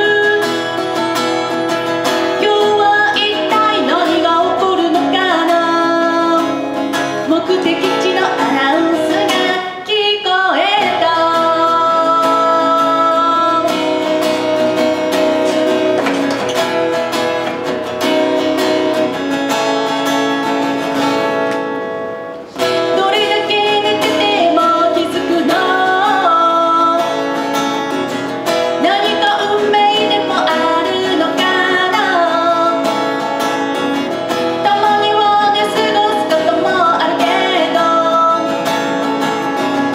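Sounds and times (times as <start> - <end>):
woman singing: 0.0 - 14.9, 22.6 - 27.5, 28.5 - 39.9
strummed acoustic guitar: 0.0 - 39.9.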